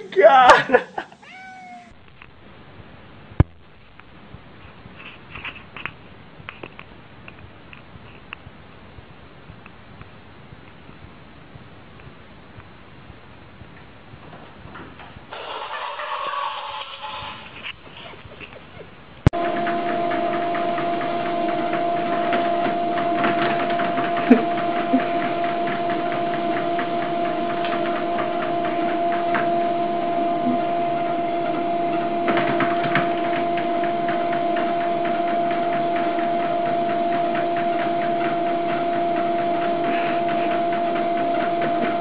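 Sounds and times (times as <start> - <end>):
machine humming: 19.3 - 42.0.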